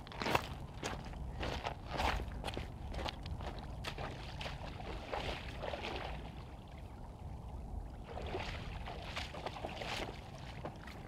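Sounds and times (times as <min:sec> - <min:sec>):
shallow water splashing: 0:08.0 - 0:11.0.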